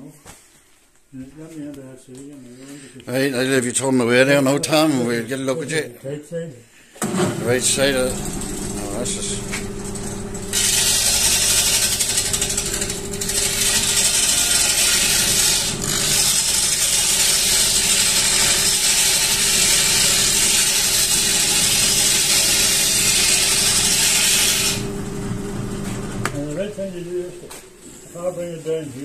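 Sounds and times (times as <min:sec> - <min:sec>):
lathe motor hum: 0:07.0 - 0:26.6
hiss of wood cutting tool: 0:10.5 - 0:24.9.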